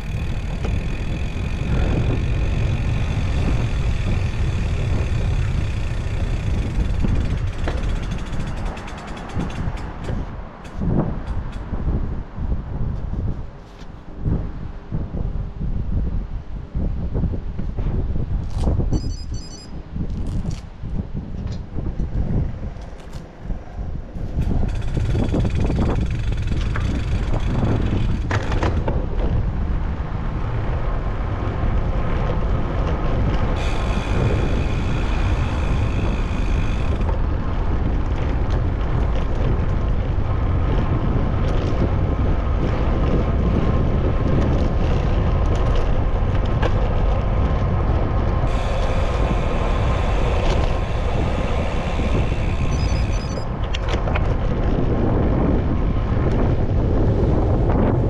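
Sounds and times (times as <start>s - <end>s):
city traffic: 0.0s - 58.0s
wind buffeting microphone: 0.0s - 58.0s
high squeal: 18.9s - 19.8s, 48.5s - 53.5s.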